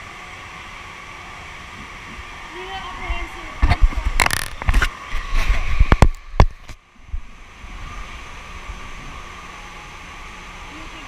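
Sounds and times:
running water: 0.0s - 11.0s
handheld camera knocking and rubbing: 3.6s - 6.8s.

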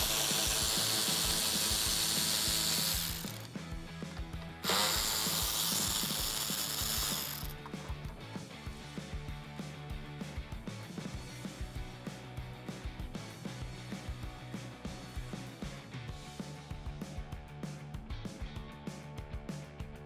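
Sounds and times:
electric ratchet spinning: 0.0s - 3.7s, 4.6s - 7.7s.

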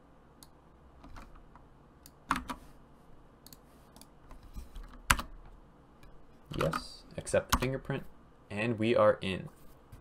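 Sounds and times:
computer keyboard typing: 2.2s - 2.6s, 4.8s - 5.4s, 6.5s - 7.8s.

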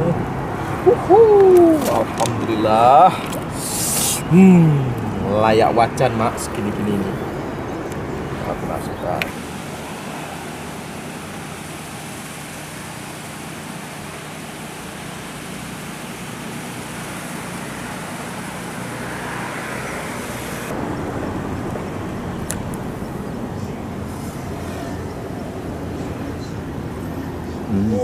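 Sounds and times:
river water rushing over weir: 9.3s - 20.8s.

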